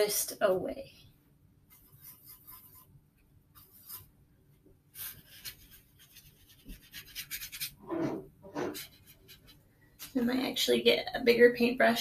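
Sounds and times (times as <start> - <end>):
paintbrush stroking on paper: 1.7 - 2.9, 3.5 - 4.2, 4.9 - 10.2.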